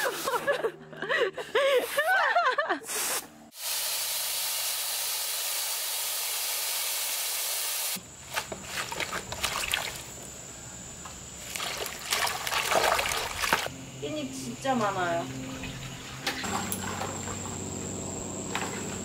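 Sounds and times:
hands splashing water in bowl: 8.3s - 10.1s, 11.4s - 13.7s.

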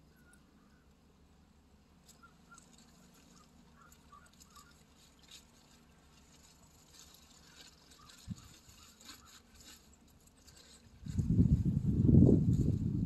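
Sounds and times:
soft high bird chirps: 0.0s - 1.0s, 2.0s - 5.2s.

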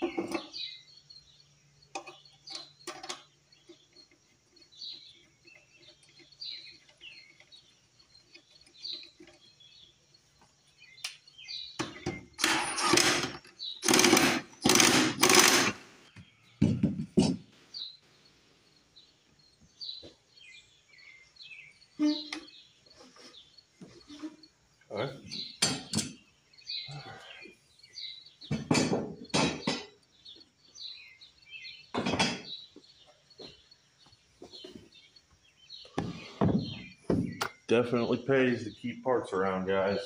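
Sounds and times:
small birds chirping: 0.0s - 40.0s
impact wrench rattling: 11.9s - 15.8s.

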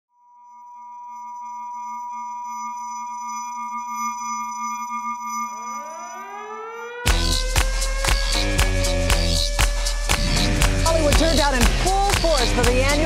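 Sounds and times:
steady electronic tones: 2.3s - 13.0s
rising pitch sweeps: 2.4s - 11.7s.

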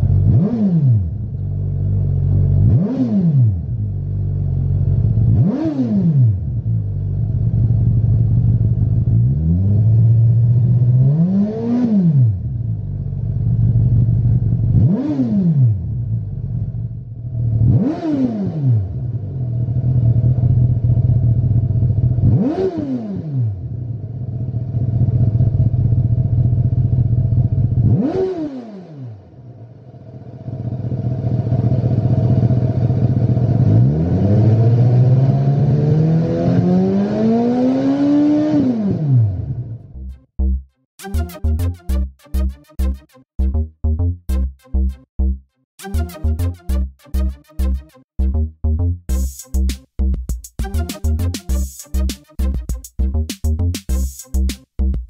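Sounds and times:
motorcycle engine idling and revving: 0.0s - 40.7s.

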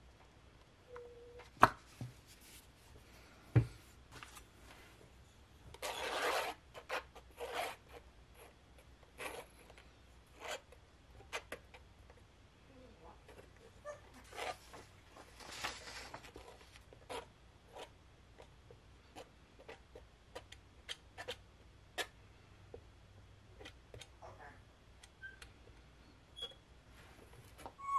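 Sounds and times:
palette knife scraping paint: 5.7s - 11.8s, 14.2s - 14.8s, 15.4s - 22.2s.

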